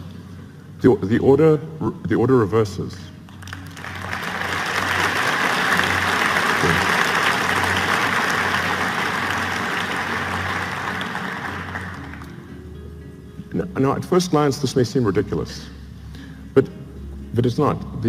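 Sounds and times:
audience applauding: 3.4s - 12.4s.

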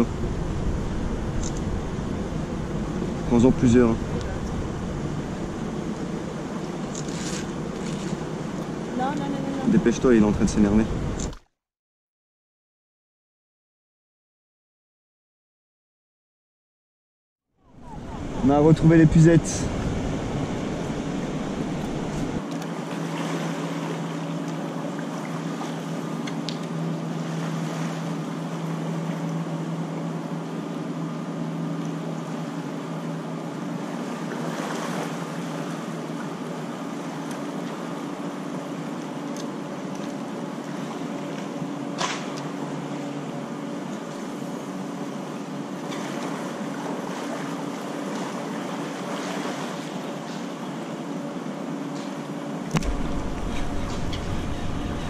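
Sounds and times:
wind on microphone: 0.0s - 6.1s, 52.8s - 55.0s
low steady hum: 0.0s - 11.4s, 17.6s - 55.0s
river water rushing: 52.8s - 55.0s.

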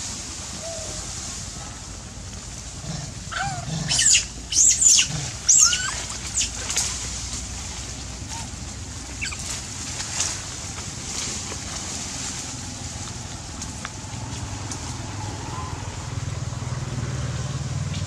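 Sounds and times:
macaques screeching: 3.3s - 6.9s, 9.1s - 9.6s.

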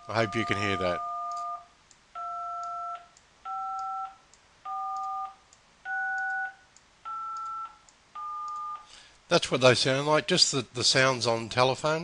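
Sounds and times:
keypad tone beeps: 0.1s - 8.9s.

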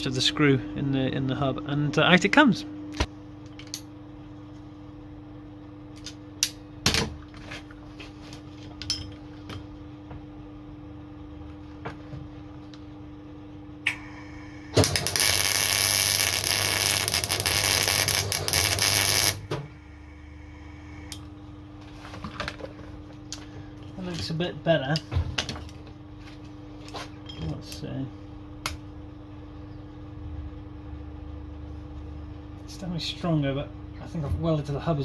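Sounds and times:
steady hum: 0.0s - 35.0s
electric arc welder crackling: 13.9s - 21.3s.

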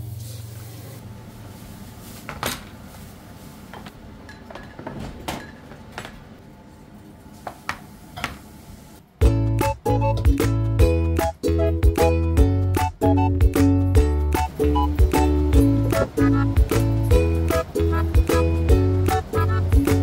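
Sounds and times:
dishes and cutlery clinking: 4.2s - 5.8s.

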